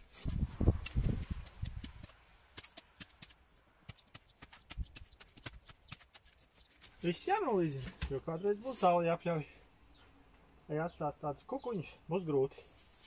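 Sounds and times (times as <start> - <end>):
shovel thumping soil: 0.2 - 8.3.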